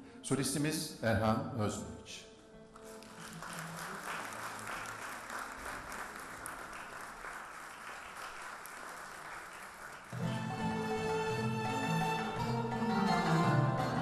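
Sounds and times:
audience applauding: 0:02.8 - 0:10.9
instrumental ensemble playing: 0:10.2 - 0:14.0.

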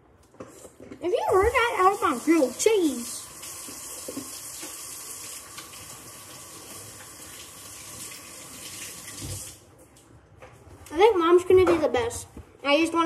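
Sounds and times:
sandwich sizzling in frying pan: 0:01.7 - 0:09.6.

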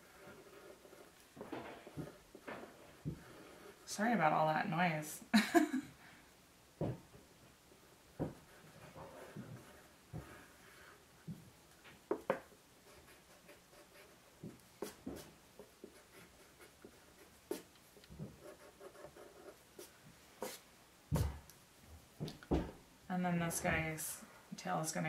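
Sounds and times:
pencil scratching on paper: 0:00.0 - 0:01.2, 0:01.8 - 0:04.0, 0:08.3 - 0:11.0, 0:12.1 - 0:14.2, 0:14.8 - 0:17.7, 0:18.4 - 0:20.6.

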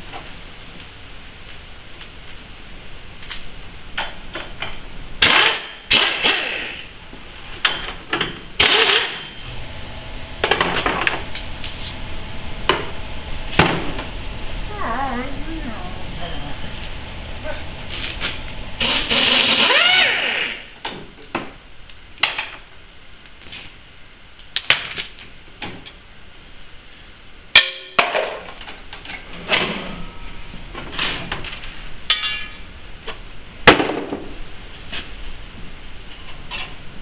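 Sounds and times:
sharp metallic strikes: 0:27.6 - 0:28.0.

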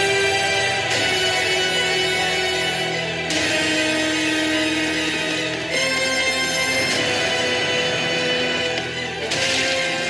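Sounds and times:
background music with chords: 0:00.0 - 0:10.0.

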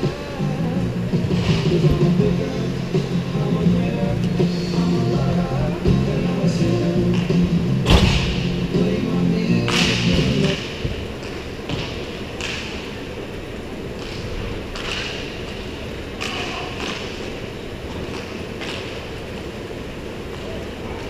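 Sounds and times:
background music: 0:00.0 - 0:10.8
hall hum: 0:00.0 - 0:21.0
hockey sticks and puck clacking: 0:09.6 - 0:13.1, 0:13.9 - 0:19.5.

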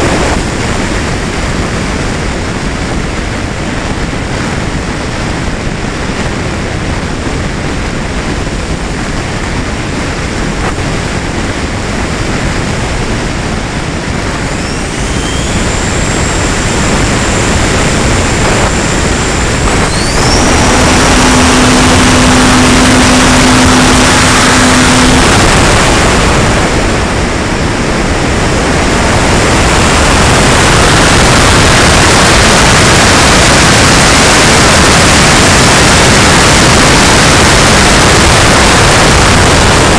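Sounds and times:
air rushing over camera: 0:00.0 - 0:39.9
propeller drone: 0:00.0 - 0:39.9
electric motor whining: 0:14.1 - 0:27.4.

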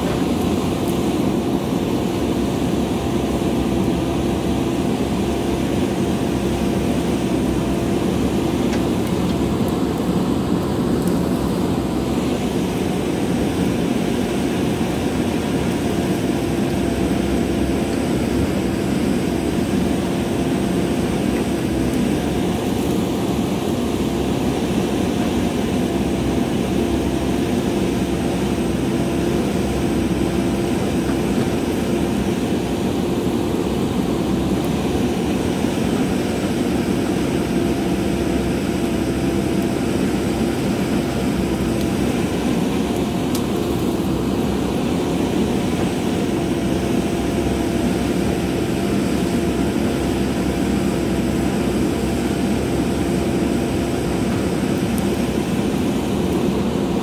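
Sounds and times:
backhoe digging rocky soil: 0:00.0 - 0:24.3
diesel engine running: 0:00.0 - 0:57.0.

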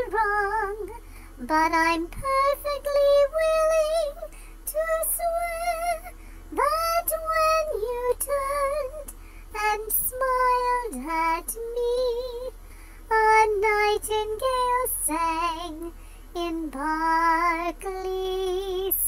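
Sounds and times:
person singing slow song: 0:00.0 - 0:19.0.

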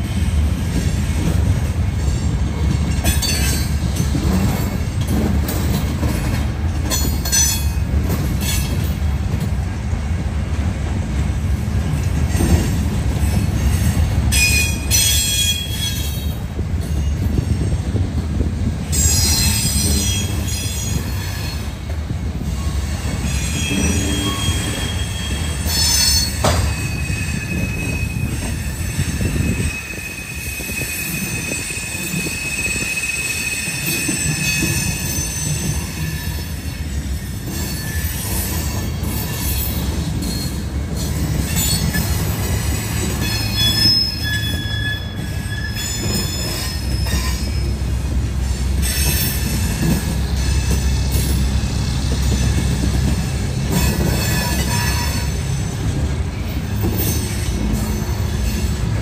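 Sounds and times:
train clanks: 0:00.0 - 0:59.0
train wheels rumbling on rail: 0:00.0 - 0:59.0
high wheel squeals: 0:13.2 - 0:17.8, 0:18.9 - 0:21.8, 0:22.6 - 0:59.0.

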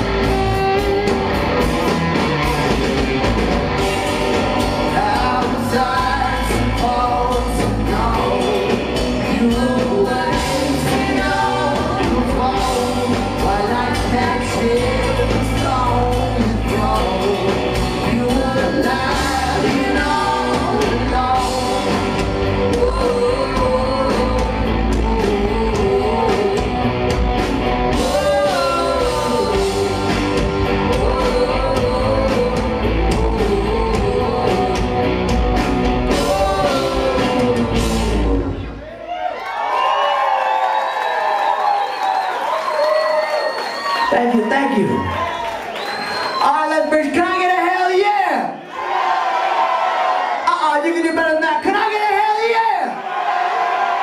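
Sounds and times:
live rock band: 0:00.0 - 0:38.9
man singing: 0:04.8 - 0:38.7.

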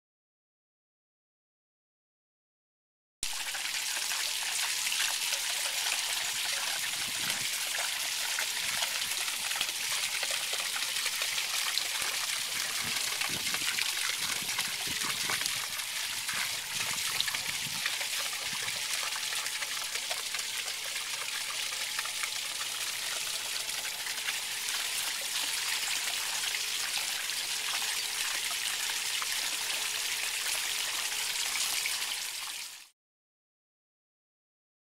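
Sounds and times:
water trickling down a rain chain: 0:03.2 - 0:32.9.

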